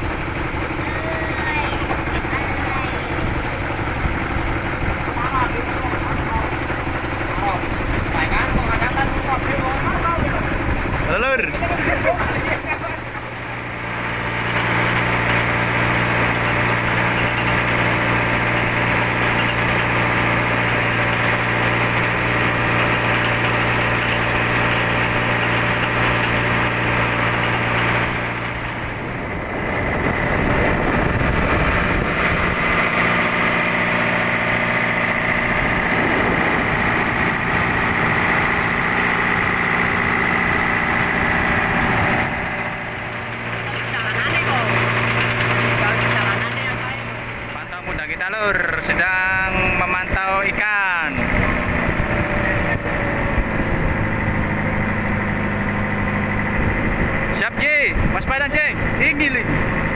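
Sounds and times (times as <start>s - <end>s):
boat engine running: 0.0s - 59.9s
steady high whine: 21.4s - 59.9s.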